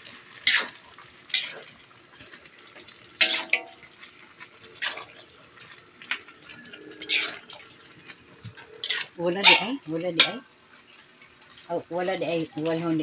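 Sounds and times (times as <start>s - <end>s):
metal spatula scraping a wok: 0.4s - 2.5s, 3.2s - 4.2s, 4.8s - 11.1s.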